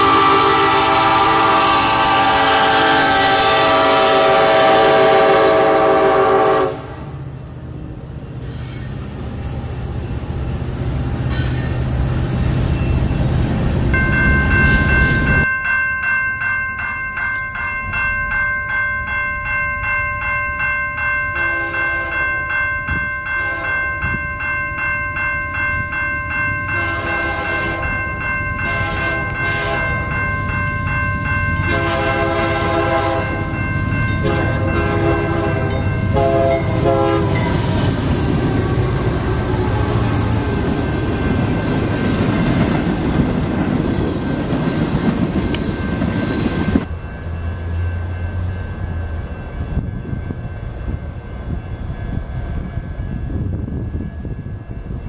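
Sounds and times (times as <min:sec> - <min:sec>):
locomotive air horn: 0:00.0 - 0:07.2, 0:21.4 - 0:22.2, 0:23.4 - 0:23.8, 0:26.8 - 0:27.9, 0:28.6 - 0:30.0, 0:31.7 - 0:33.4, 0:34.2 - 0:37.8
railroad crossing bell ringing: 0:00.0 - 0:55.0
train rumbling past: 0:00.0 - 0:55.0.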